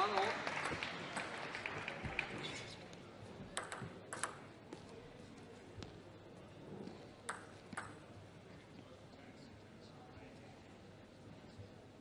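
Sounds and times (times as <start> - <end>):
table tennis ball clicks: 3.5 - 4.4, 7.3 - 8.0.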